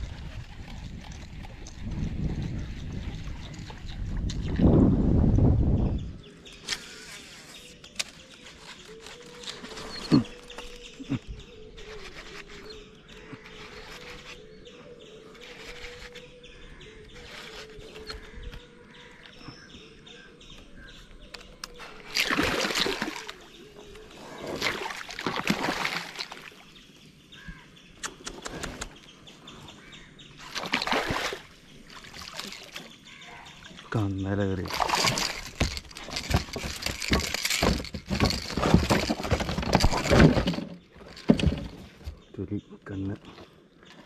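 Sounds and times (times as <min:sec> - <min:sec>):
birds calling: 0:00.0 - 0:44.0.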